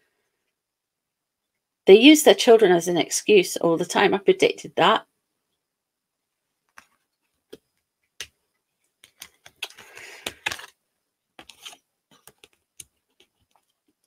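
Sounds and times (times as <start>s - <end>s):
cards sliding rustle: 8.9s - 10.8s, 11.4s - 14.0s.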